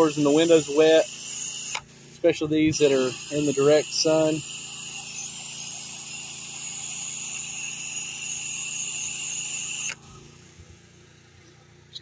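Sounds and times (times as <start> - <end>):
pressure washer spray hissing: 0.0 - 11.0.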